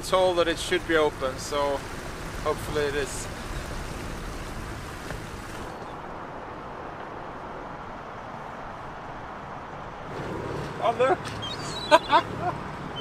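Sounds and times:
boat running low: 0:00.0 - 0:06.4, 0:10.1 - 0:13.0
wind and water rushing: 0:00.0 - 0:13.0.

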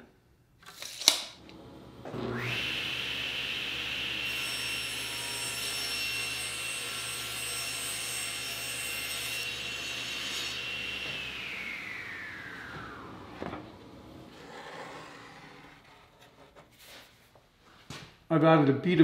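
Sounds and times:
table saw running: 0:01.5 - 0:16.6
saw cutting plywood: 0:02.1 - 0:17.0.

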